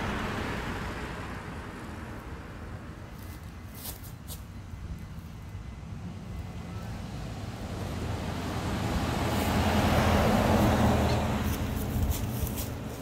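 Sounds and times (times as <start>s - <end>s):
car driving past: 0.0s - 2.6s, 6.5s - 12.2s.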